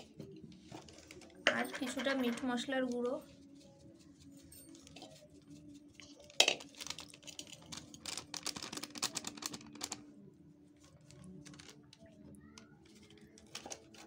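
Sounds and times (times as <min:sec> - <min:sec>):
spice packet rustling: 0:00.8 - 0:10.1, 0:10.8 - 0:12.0.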